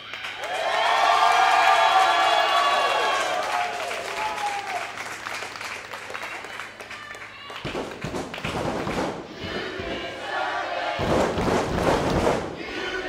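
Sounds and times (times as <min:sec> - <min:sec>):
crowd applauding and shouting: 0:00.0 - 0:08.6.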